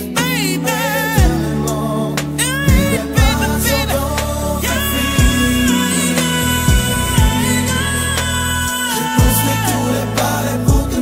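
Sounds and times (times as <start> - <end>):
slow ballad chords: 0.0 - 11.0
low drum beats: 2.7 - 3.5, 5.0 - 7.8.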